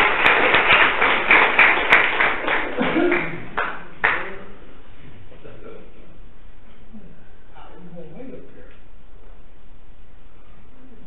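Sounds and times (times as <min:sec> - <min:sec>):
people clapping: 0:00.0 - 0:04.6.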